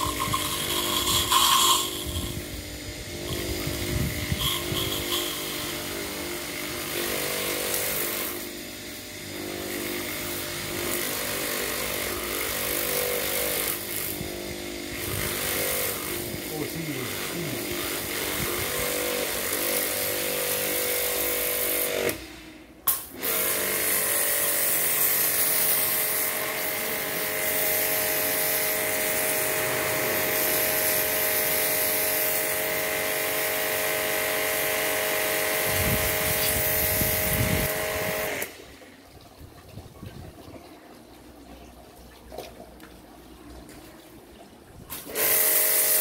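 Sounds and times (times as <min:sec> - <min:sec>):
water spray hissing: 0:00.0 - 0:05.9, 0:35.6 - 0:38.3
pressure washer motor running: 0:00.0 - 0:39.0, 0:44.9 - 0:46.0.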